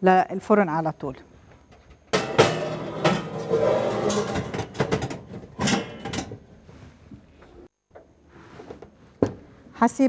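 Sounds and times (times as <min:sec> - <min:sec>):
pan scraping on oven rack: 0:02.1 - 0:06.5.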